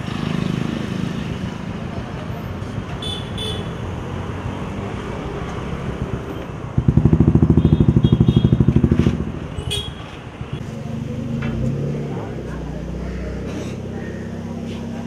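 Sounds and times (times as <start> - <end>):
street traffic: 0.0 - 15.0
motorcycle engine pulsing: 6.1 - 11.9.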